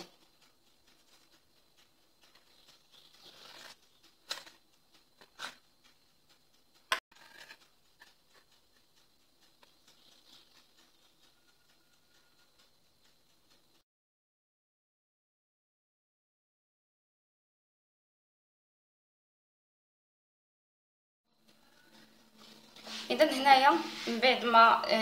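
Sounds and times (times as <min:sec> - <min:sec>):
hands working dough in bowl: 0:22.3 - 0:25.0.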